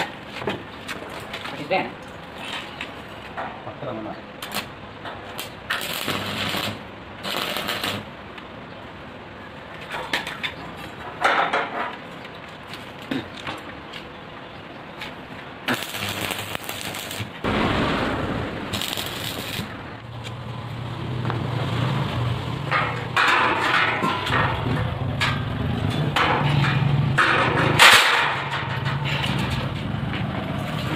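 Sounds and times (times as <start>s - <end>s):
welding arc crackling: 4.4s - 8.2s, 15.6s - 20.9s
low hum: 15.8s - 21.3s
metal knocks: 22.7s - 29.8s.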